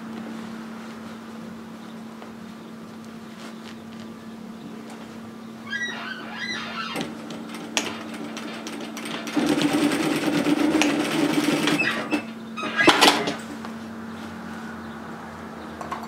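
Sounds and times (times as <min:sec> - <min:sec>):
sewing machine stitching: 0:07.0 - 0:13.5.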